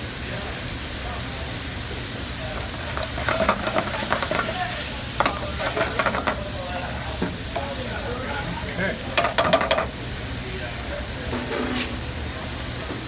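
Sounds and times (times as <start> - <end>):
sauce sizzling: 0.0 - 11.2
metal tongs scraping pan: 2.5 - 6.5, 9.2 - 9.9.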